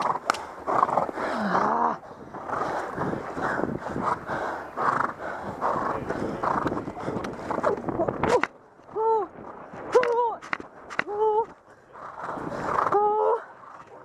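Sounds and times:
horse heavy breathing: 0.0s - 8.0s, 11.6s - 14.0s
wind rush: 0.0s - 11.3s, 12.0s - 13.0s
horse hooves galloping: 0.0s - 14.0s.

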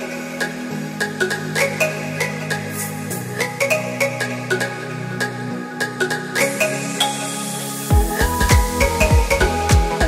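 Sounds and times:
electronic music with plucked notes: 0.0s - 10.0s.

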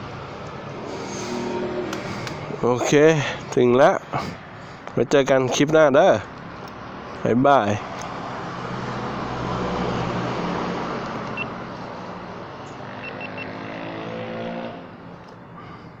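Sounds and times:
second engine note climbing: 0.0s - 3.6s
road noise: 0.0s - 16.0s.

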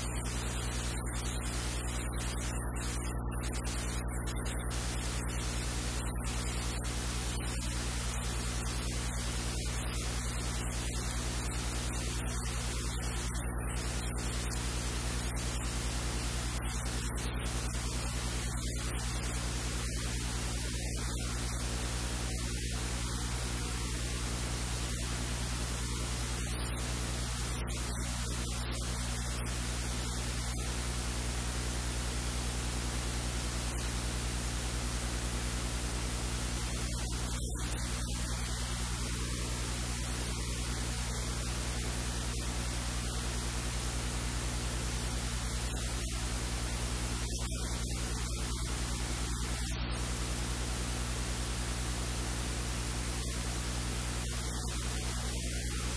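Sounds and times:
constant hiss: 0.0s - 55.9s
electrical hum: 0.0s - 55.9s.

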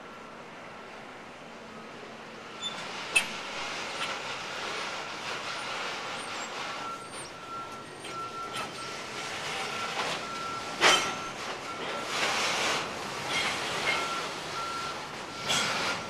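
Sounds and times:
train wheels rumbling on track: 0.0s - 16.0s
high wheel squeal: 2.5s - 4.2s, 5.4s - 12.6s, 13.2s - 16.0s
wheels clicking over rail joints: 5.2s - 16.0s.

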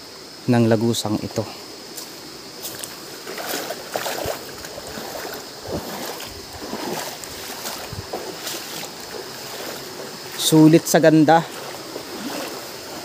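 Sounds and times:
water splashing and sloshing: 1.9s - 13.0s.

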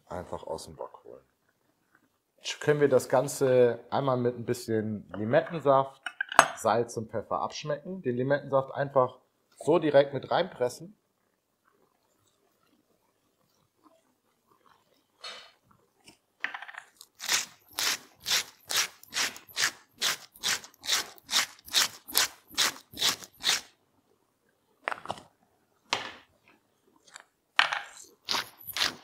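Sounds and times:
salt mill grinding: 17.0s - 23.7s, 27.8s - 29.0s.

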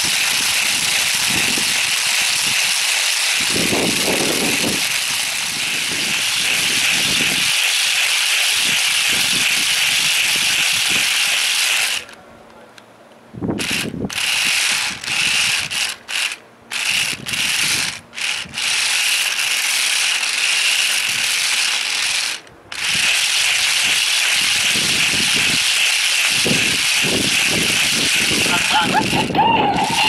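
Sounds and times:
toy electric motors whirring: 0.0s - 12.2s, 13.6s - 30.0s.

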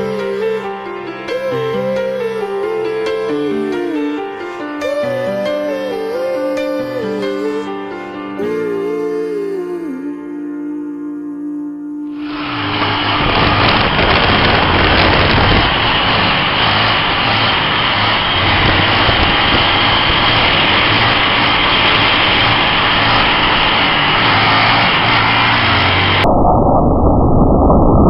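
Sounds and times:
wind noise on microphone: 12.2s - 28.0s
motorcycle engine running: 12.4s - 26.2s.

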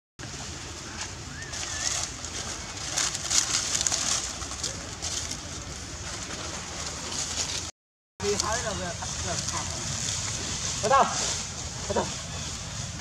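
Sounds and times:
dry leaves rustling: 0.2s - 13.0s.

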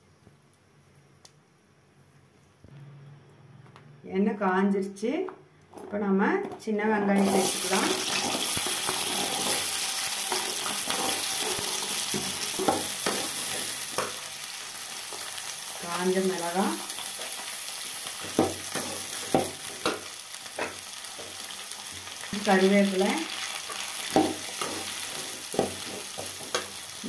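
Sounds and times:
metal ladle scraping pan: 7.2s - 14.1s
shallots sizzling in hot oil: 7.2s - 27.0s.

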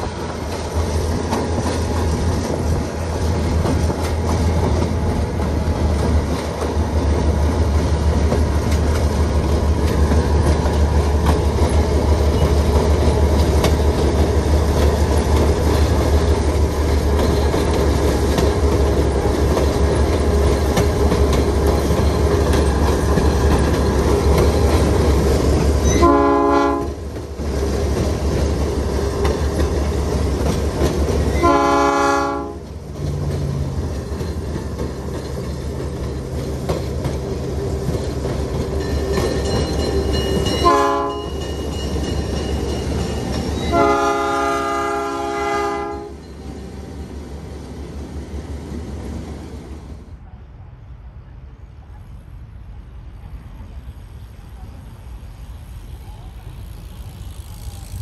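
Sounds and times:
diesel locomotive rumbling: 0.0s - 58.0s
multi-note train air horn: 25.8s - 27.0s, 31.4s - 32.6s, 40.6s - 41.3s, 43.7s - 46.2s.

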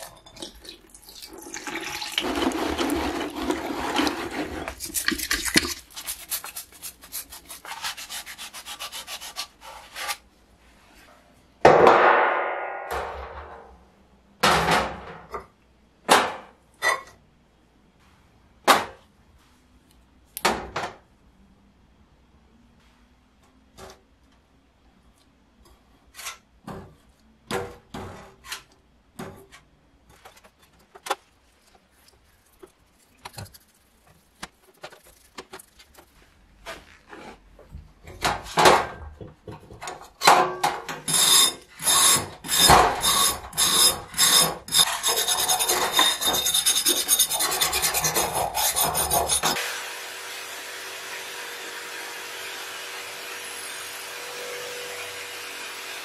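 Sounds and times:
brush scrubbing metal: 2.2s - 10.2s, 31.4s - 37.0s, 41.1s - 49.6s
knocks and scrapes: 2.2s - 11.2s, 26.0s - 49.6s.

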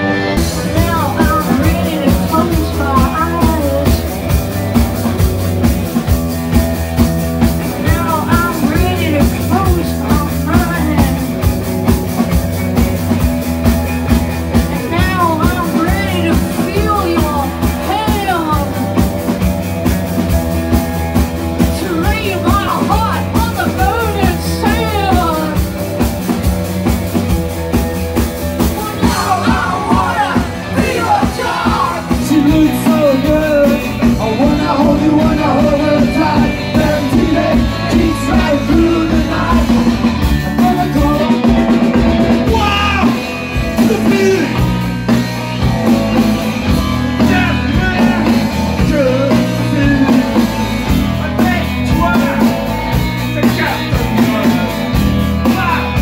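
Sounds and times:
electric guitars: 0.0s - 56.0s
drum beat: 0.3s - 56.0s
person singing into a microphone: 0.6s - 4.0s, 7.8s - 11.2s, 28.8s - 41.8s, 47.2s - 50.6s.

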